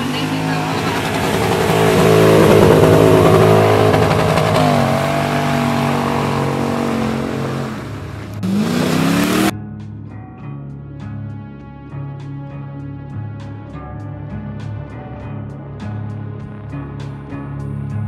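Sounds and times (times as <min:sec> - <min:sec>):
pickup engine revving hard: 0:00.0 - 0:09.5
tyres churning mud: 0:00.0 - 0:09.5
background music: 0:00.0 - 0:18.0.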